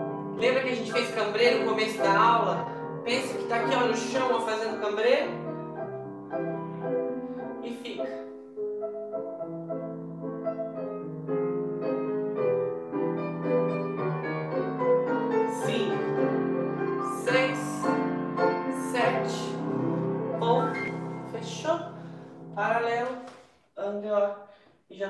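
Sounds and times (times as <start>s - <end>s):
slow piano music: 0.0s - 22.8s.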